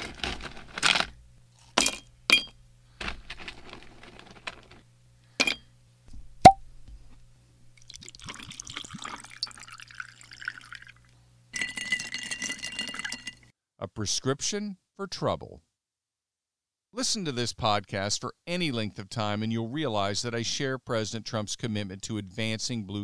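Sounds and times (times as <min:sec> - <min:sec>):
liquid pouring into glass: 0:07.8 - 0:13.3.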